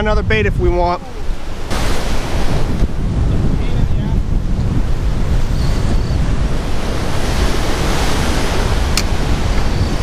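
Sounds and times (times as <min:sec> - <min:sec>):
wind buffeting microphone: 0:00.0 - 0:10.0
breaking surf: 0:00.6 - 0:10.0.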